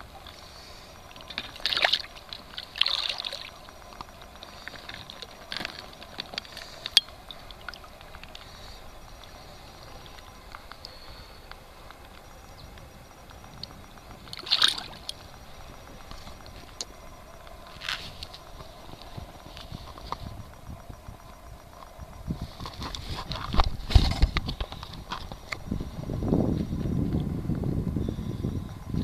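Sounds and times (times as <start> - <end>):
fish splashing in water: 0.0 - 12.3, 13.4 - 20.0.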